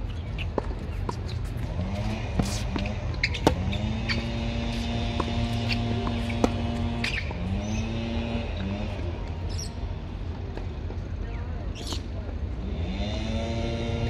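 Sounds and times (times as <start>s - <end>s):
tennis ball bouncing: 0.1s - 9.6s
motor-like drone: 1.4s - 10.5s, 12.6s - 14.0s.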